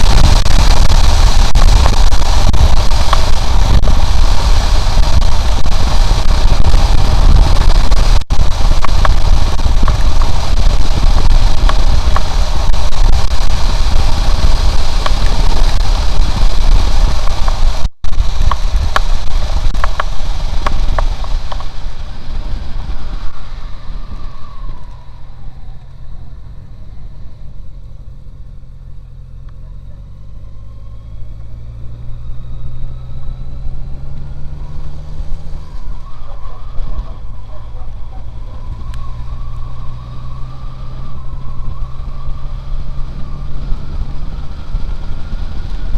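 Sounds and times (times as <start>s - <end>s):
wind noise on microphone: 0.0s - 27.7s, 30.0s - 45.9s
motorcycle engine: 0.0s - 45.9s.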